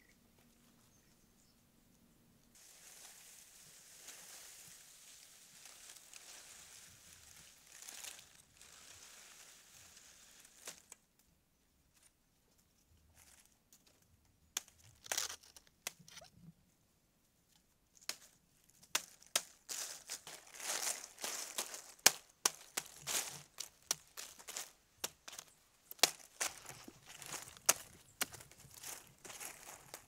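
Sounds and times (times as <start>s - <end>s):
palm fronds rustling: 2.6s - 11.1s, 18.0s - 30.0s
machete chopping stalks: 21.5s - 28.4s.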